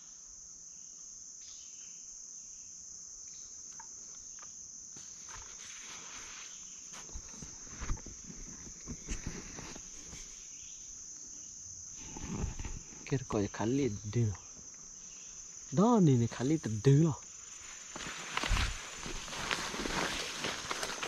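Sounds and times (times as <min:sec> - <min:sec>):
insects chorus: 0:00.0 - 0:21.0
footsteps through leafy undergrowth: 0:05.0 - 0:10.5, 0:17.3 - 0:21.0.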